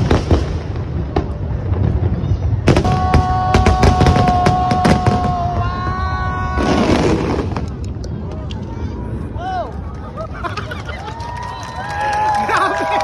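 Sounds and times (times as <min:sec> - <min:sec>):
fireworks bangs: 0:00.0 - 0:09.0.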